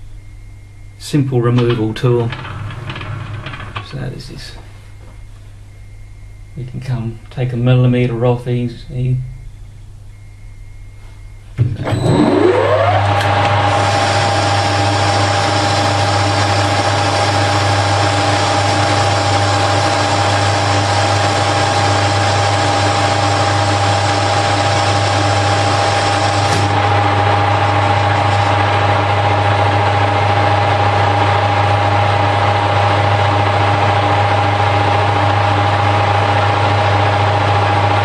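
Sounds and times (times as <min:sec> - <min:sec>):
metal lathe humming and whining: 0:11.8 - 0:38.0.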